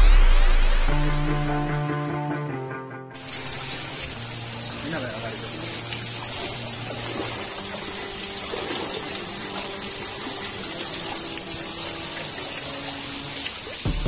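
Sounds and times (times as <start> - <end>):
water splashing into a stream: 3.2 - 14.0.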